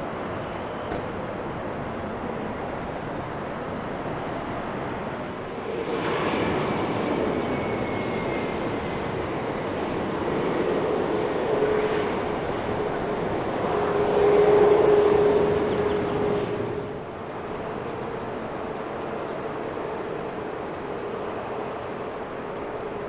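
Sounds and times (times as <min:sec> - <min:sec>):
jet engines rushing with humming tone: 0:00.0 - 0:23.0.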